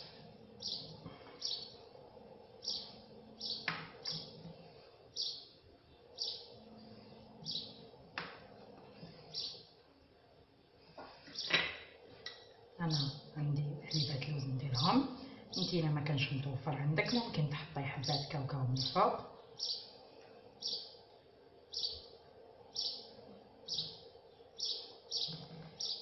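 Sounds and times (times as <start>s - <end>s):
faint steady hum: 0.0s - 26.0s
bird chirping: 0.6s - 1.8s, 2.6s - 4.5s, 5.1s - 7.9s, 9.2s - 9.7s, 12.8s - 16.4s, 18.0s - 20.0s, 20.6s - 21.0s, 21.7s - 26.0s.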